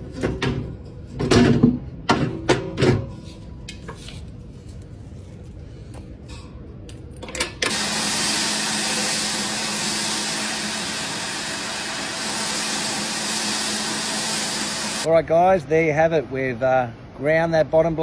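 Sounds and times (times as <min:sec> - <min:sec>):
motor humming: 0:07.7 - 0:15.1
mower reel spinning with grinding hiss: 0:07.7 - 0:15.1.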